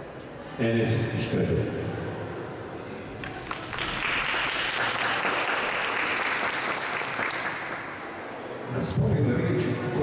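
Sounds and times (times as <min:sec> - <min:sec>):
audience applauding: 0:03.2 - 0:08.2.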